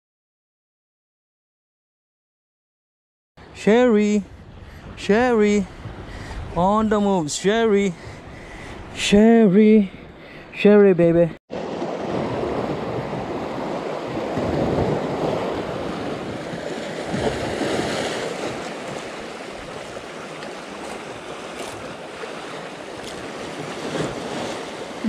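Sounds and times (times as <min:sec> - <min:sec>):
surf breaking over rocks: 0:11.5 - 0:25.0.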